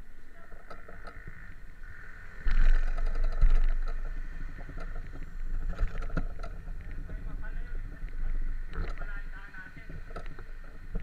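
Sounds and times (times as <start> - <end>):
low rumble on microphone: 0.0 - 11.0
roadside traffic: 0.0 - 11.0
scattered clicks: 2.4 - 7.3.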